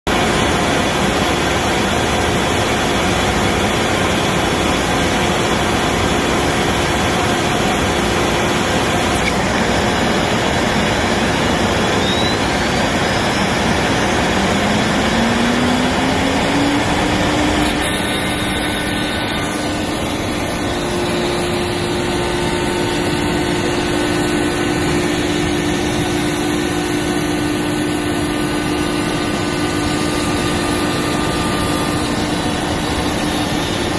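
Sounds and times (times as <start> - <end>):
cnc router cutting acrylic: 0.1 - 33.9
dust extraction running: 5.2 - 33.9
low rising tone: 9.9 - 22.4.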